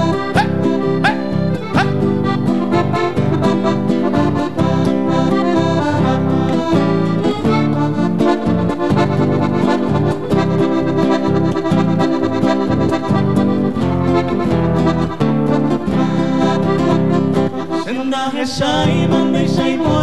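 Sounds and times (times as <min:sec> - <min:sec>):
piano accordion playing: 0:00.0 - 0:18.2
acoustic guitar: 0:00.0 - 0:20.0.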